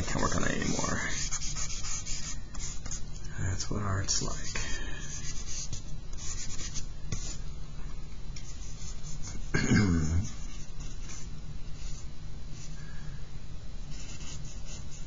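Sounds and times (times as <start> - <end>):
charcoal scratching on paper: 0.0 - 3.0, 4.4 - 7.4.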